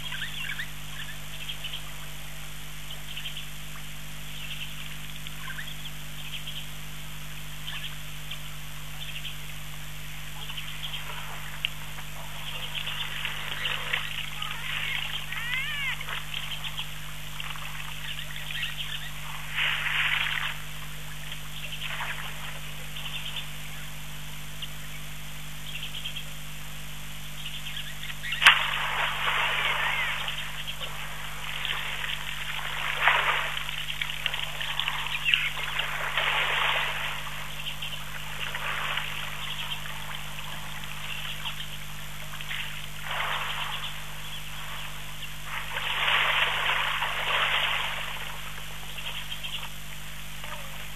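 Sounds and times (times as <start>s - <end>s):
steady low hum: 0.0s - 50.9s
high chirping animal calls: 12.8s - 17.0s, 29.6s - 30.8s.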